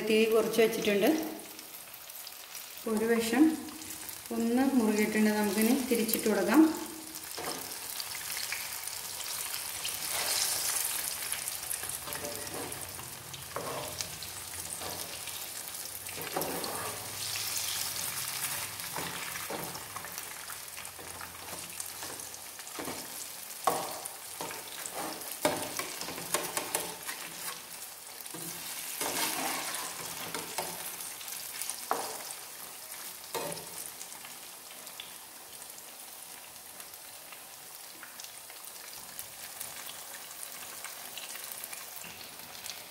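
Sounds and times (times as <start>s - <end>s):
food sizzling in hot oil: 0.0s - 42.9s
turner tapping and scraping pan: 12.0s - 14.1s, 14.7s - 15.4s, 16.1s - 17.1s, 18.9s - 20.1s, 20.9s - 27.6s, 28.3s - 31.0s, 31.9s - 32.3s.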